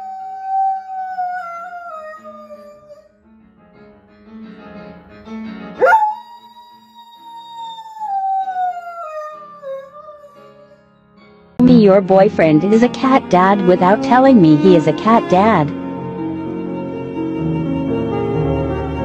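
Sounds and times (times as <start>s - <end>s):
dog howling: 0.0s - 3.0s, 5.8s - 10.7s.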